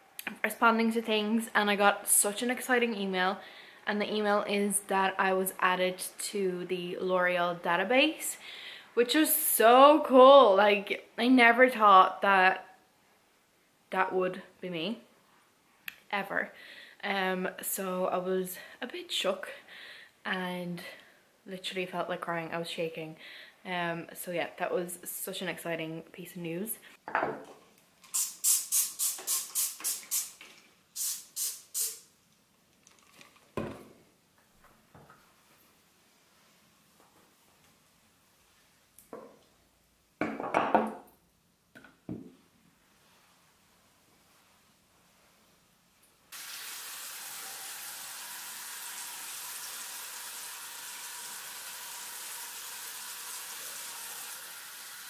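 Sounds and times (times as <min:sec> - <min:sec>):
spray bottle hissing sprays: 0:28.0 - 0:30.4, 0:31.0 - 0:32.1
water running into sink over hands: 0:46.4 - 0:55.0.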